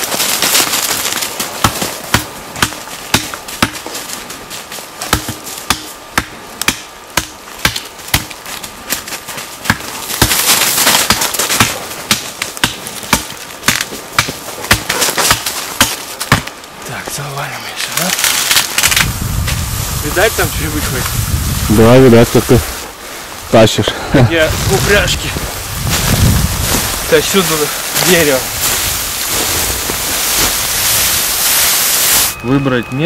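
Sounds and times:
branches rustling: 0:00.0 - 0:33.0
axe chopping into tree trunk: 0:01.6 - 0:03.9, 0:05.0 - 0:09.0, 0:09.6 - 0:16.5.

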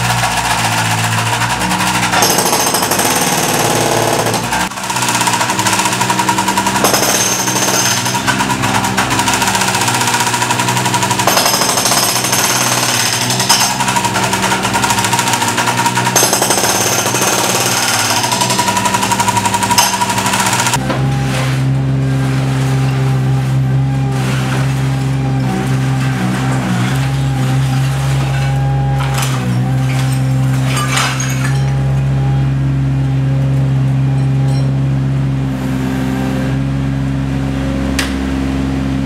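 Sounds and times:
hydraulic breaker hammering: 0:00.0 - 0:21.3
loader engine running: 0:00.0 - 0:30.6, 0:31.7 - 0:39.0.

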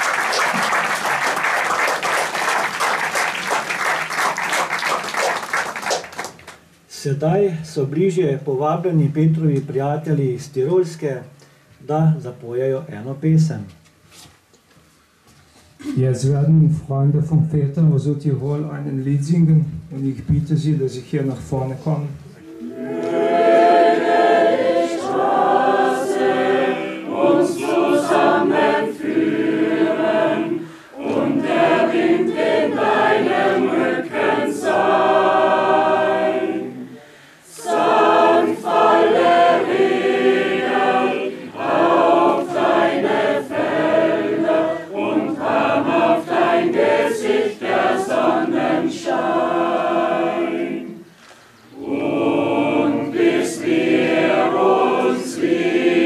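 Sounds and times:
mixed choir singing: 0:22.4 - 0:56.0.

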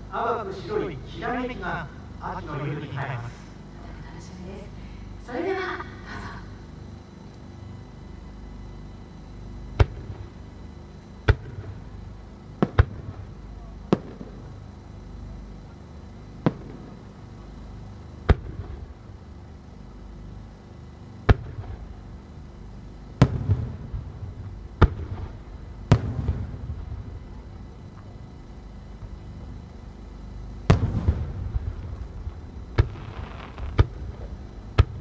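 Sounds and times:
low rumbling echo: 0:30.6 - 0:35.0
firework shells bursting: 0:30.7 - 0:35.0.

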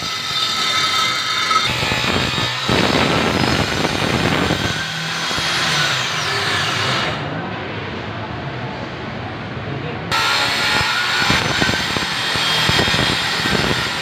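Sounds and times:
circular saw cutting plywood: 0:00.0 - 0:07.3, 0:10.1 - 0:14.0.

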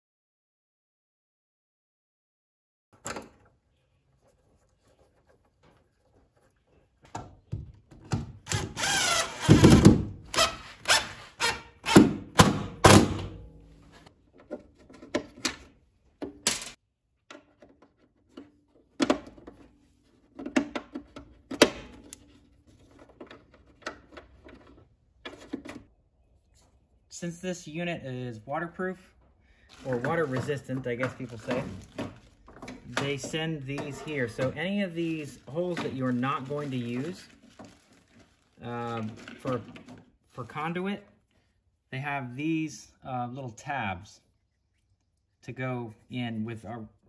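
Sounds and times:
cordless drill: 0:08.5 - 0:12.1.

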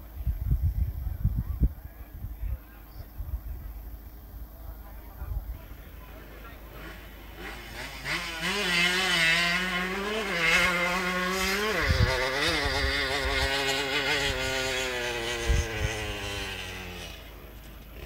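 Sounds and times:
moped engine running hard: 0:04.8 - 0:18.0.

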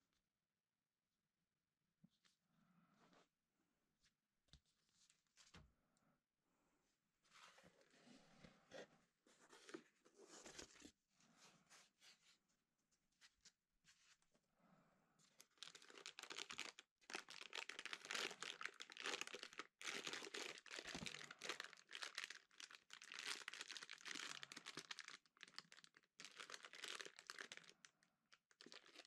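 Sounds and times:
plastic bag crinkling: 0:15.4 - 0:29.0.

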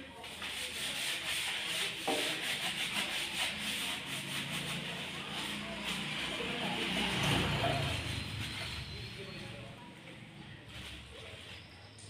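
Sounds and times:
rag scrubbing wheel hub: 0:00.2 - 0:09.4.

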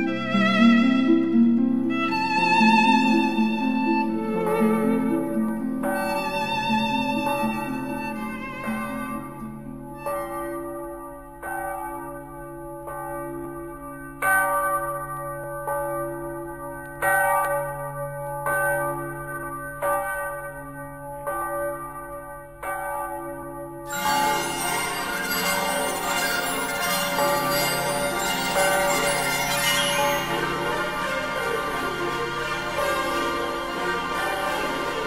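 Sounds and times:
music: 0:00.0 - 0:13.7, 0:23.8 - 0:35.0
church bell ringing: 0:02.4 - 0:35.0.

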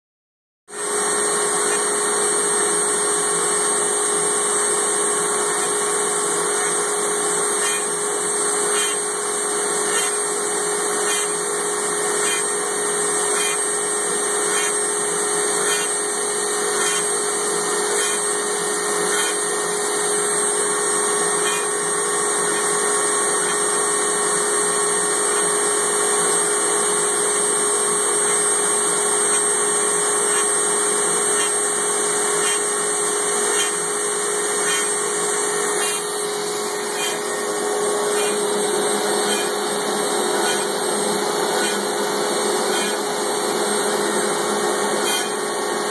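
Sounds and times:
router spindle running: 0:00.8 - 0:45.9.

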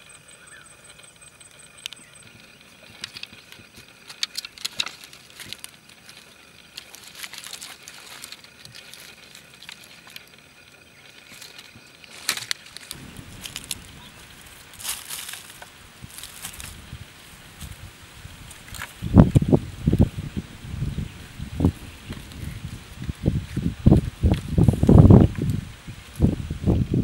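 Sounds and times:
dry sticks crackling and snapping: 0:02.8 - 0:10.4, 0:11.0 - 0:16.9, 0:18.4 - 0:19.6
rustling: 0:02.9 - 0:10.4, 0:11.0 - 0:20.5
footsteps on dry debris: 0:04.6 - 0:10.2, 0:11.2 - 0:20.0, 0:21.6 - 0:25.4.

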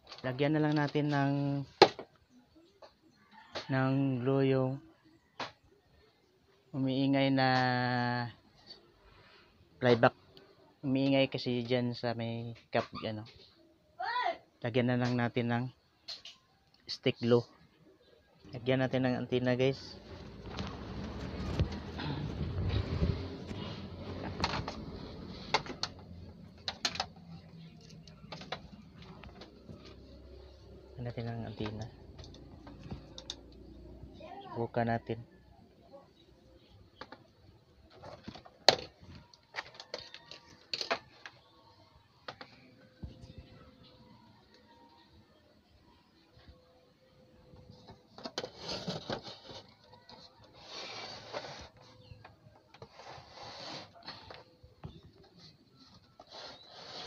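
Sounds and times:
scraping and rubbing on plastic: 0:19.8 - 0:30.8, 0:47.6 - 0:57.0.

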